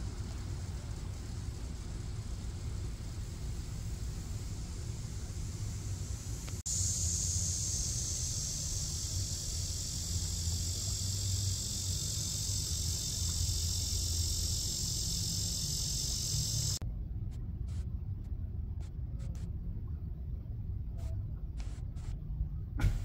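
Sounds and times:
low background rumble: 0.0s - 23.0s
high-pitched insect drone: 5.6s - 16.8s.

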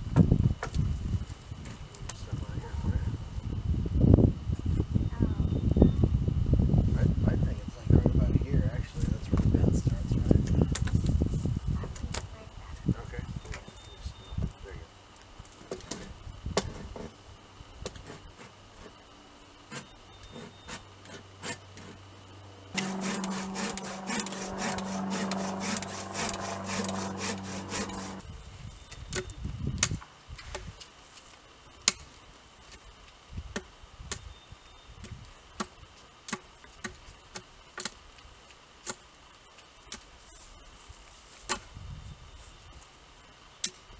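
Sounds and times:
cordless power tool running: 22.8s - 28.2s
hand sawing wood: 22.8s - 28.2s.

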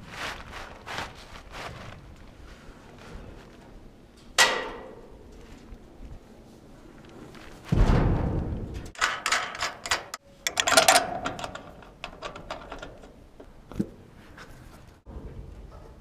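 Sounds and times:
heavy thump: 7.7s - 8.9s.

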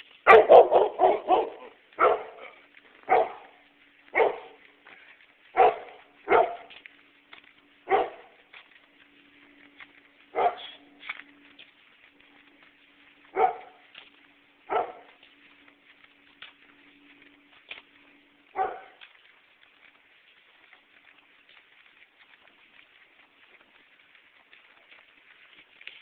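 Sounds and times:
dog barking: 0.2s - 3.5s, 4.1s - 4.6s, 5.5s - 6.7s, 7.8s - 8.3s, 10.3s - 10.8s, 13.3s - 13.8s, 14.7s - 15.1s, 18.5s - 19.0s.

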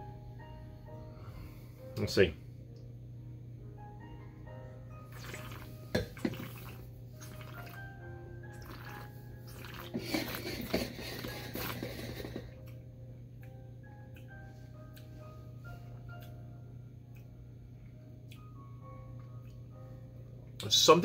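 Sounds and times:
soft background music: 0.0s - 21.0s
wine slurped in mouth: 5.1s - 7.9s, 8.6s - 12.4s.

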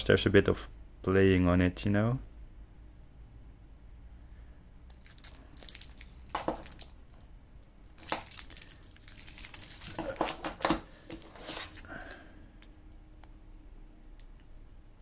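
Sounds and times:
price tag crinkling: 4.9s - 12.2s.

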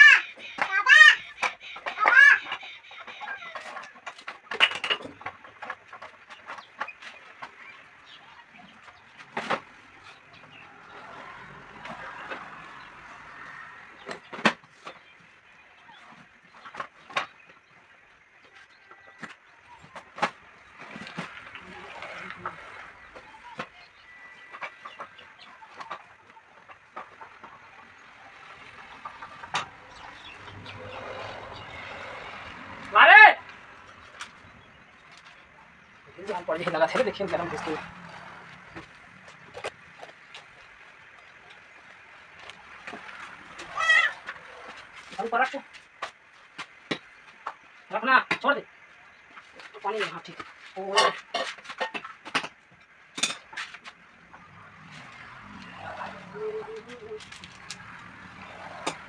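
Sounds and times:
chicken clucking: 0.0s - 4.6s, 18.4s - 32.2s
rubber clicks and rustles: 56.7s - 59.0s.

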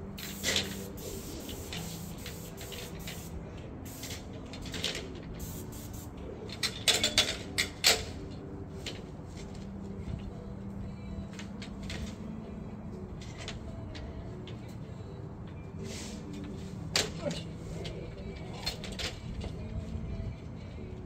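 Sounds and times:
paint sprayer hissing: 0.0s - 4.3s, 5.4s - 6.1s
steady low hum: 0.0s - 21.0s.

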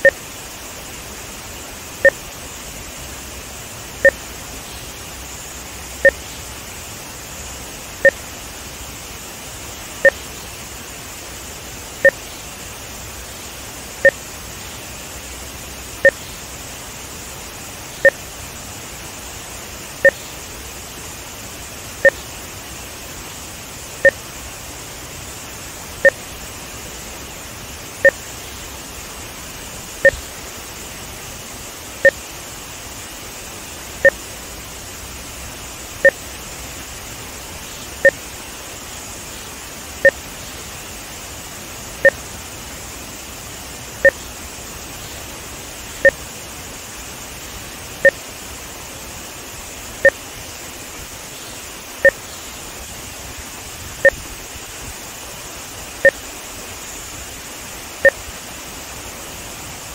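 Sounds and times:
two-tone electronic beeps: 0.0s - 0.2s, 4.0s - 4.2s, 6.0s - 6.2s, 10.0s - 10.2s, 16.0s - 16.3s, 18.0s - 18.2s, 20.0s - 20.2s, 22.0s - 22.2s, 28.0s - 28.2s, 30.0s - 30.3s, 34.0s - 34.2s, 36.0s - 36.2s, 42.0s - 42.2s, 44.0s - 44.2s
water rushing: 0.0s - 59.9s.

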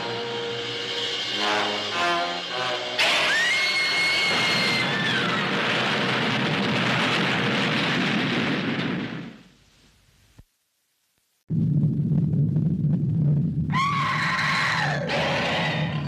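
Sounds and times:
woman screaming: 3.3s - 5.3s
loud rumbling roar: 11.8s - 16.0s.

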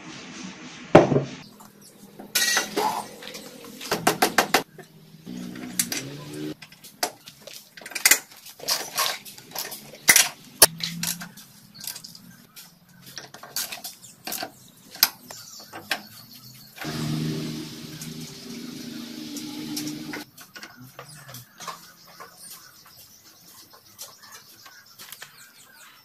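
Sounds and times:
metal bolts and tools clinking: 2.2s - 3.0s, 4.8s - 12.3s, 13.1s - 15.1s
low steady hum: 16.8s - 20.2s.

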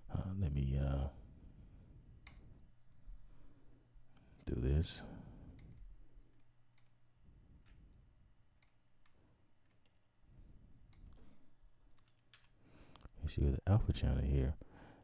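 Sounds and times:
low room hum: 0.0s - 15.0s
faint computer mouse clicks: 8.6s - 10.0s.

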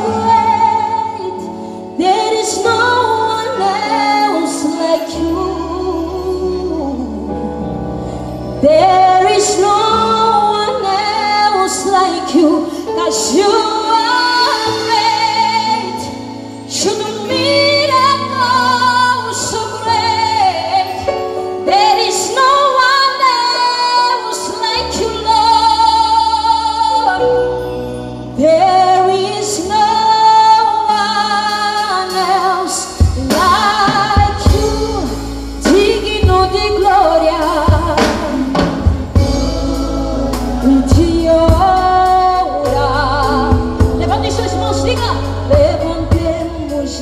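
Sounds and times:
woman singing with vibrato: 0.0s - 7.8s, 8.6s - 27.4s, 28.3s - 47.0s
drum kit: 31.4s - 47.0s
bass notes: 33.0s - 47.0s.

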